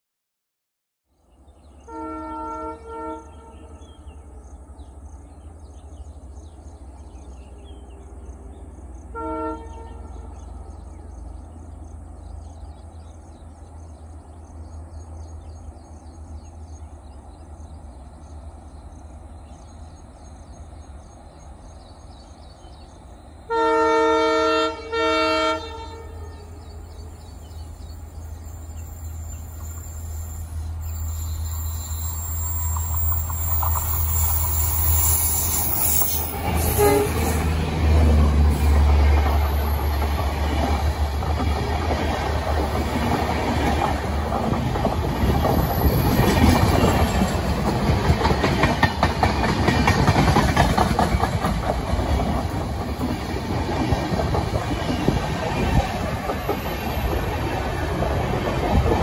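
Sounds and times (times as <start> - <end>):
train rumble: 1.4 - 59.0
locomotive horn blasts: 1.9 - 3.8, 9.1 - 10.3, 23.5 - 26.6, 36.6 - 37.5.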